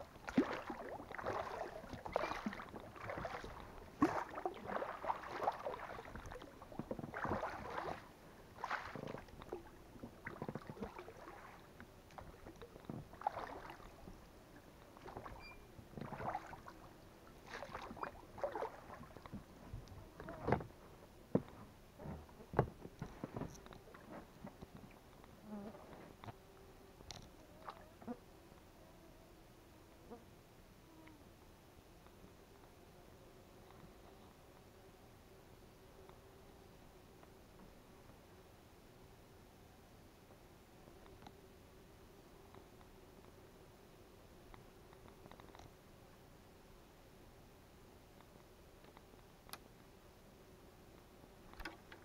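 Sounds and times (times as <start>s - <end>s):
oars splashing in water: 0.0s - 14.2s, 14.8s - 19.5s, 51.5s - 52.0s.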